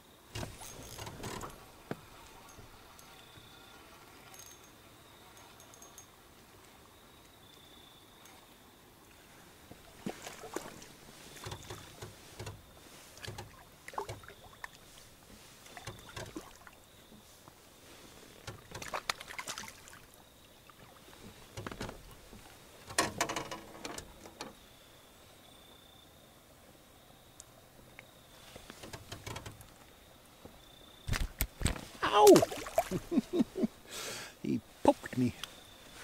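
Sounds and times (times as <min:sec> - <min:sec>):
water splashing against boat: 0:09.5 - 0:23.3, 0:31.1 - 0:33.8.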